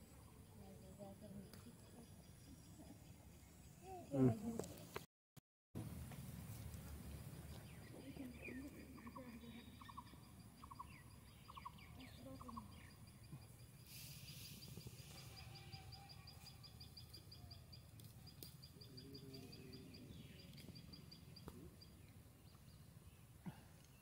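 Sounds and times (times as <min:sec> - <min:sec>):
high thin chirping: 0:13.8 - 0:17.3
brief hiss: 0:13.9 - 0:15.3.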